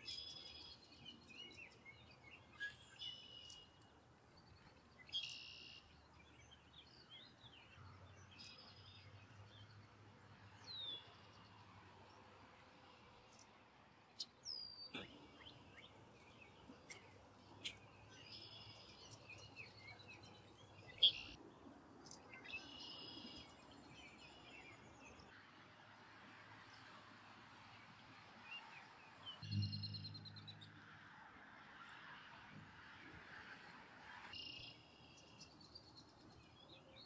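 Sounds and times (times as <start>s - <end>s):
bird chirps and calls: 0.0s - 3.9s, 5.0s - 7.3s, 14.2s - 21.4s
faint outdoor background noise: 0.0s - 37.0s
low hum: 29.4s - 30.9s.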